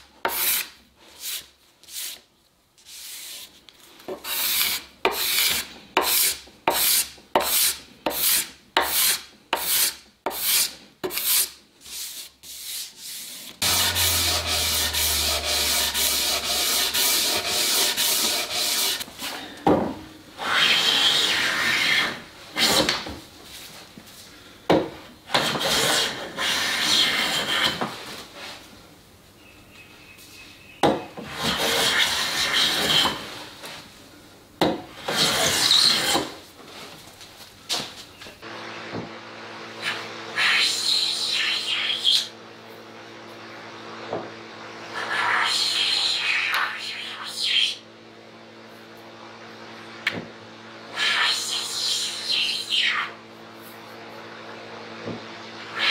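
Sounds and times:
hand plane shaving wood: 4.2s - 19.1s, 31.2s - 33.3s
steady scraping noise: 11.2s - 19.1s
low hum: 13.6s - 19.0s.

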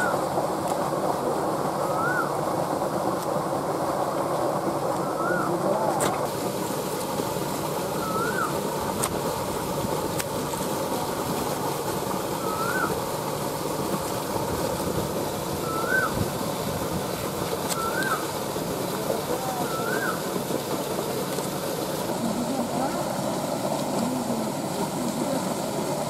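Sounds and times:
outdoor background noise: 0.0s - 26.0s
bird calling: 1.8s - 2.4s, 5.0s - 5.8s, 7.9s - 8.7s, 12.4s - 13.0s, 15.6s - 16.3s, 17.7s - 18.3s, 19.0s - 20.3s.

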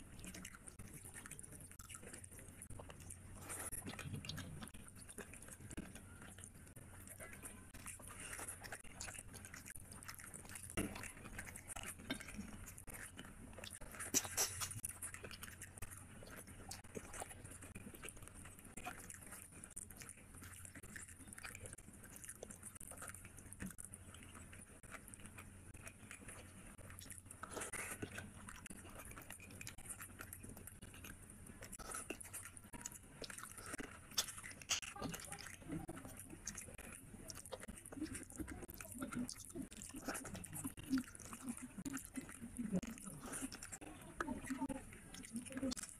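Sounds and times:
person chewing: 0.0s - 45.9s.

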